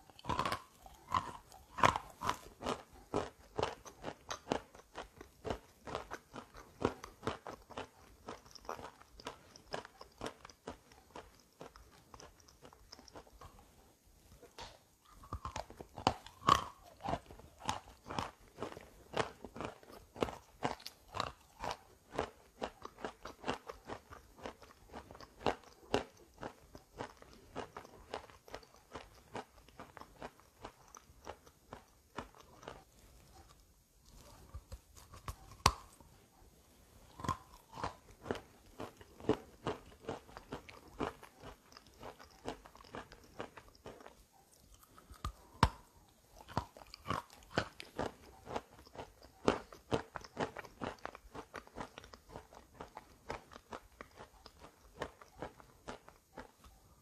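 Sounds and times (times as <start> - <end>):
chalk crunching while chewed: 0.0 - 36.2, 36.9 - 57.0.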